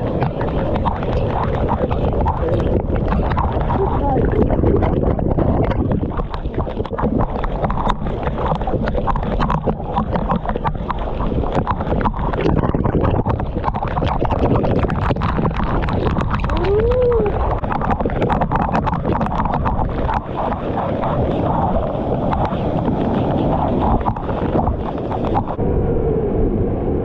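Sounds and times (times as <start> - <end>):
water drops striking microphone: 0.0 - 25.6.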